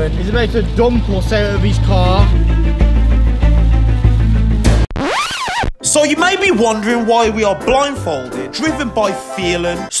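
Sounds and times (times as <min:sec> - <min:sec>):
music with heavy bass beat: 0:01.4 - 0:05.8.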